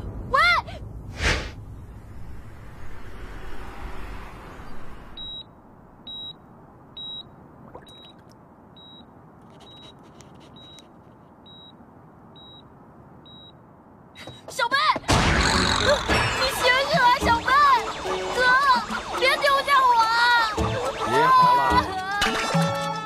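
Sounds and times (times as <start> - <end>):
patient monitor beeping: 8.8 - 10.9, 11.5 - 11.8, 12.4 - 12.7, 20.1 - 22.1.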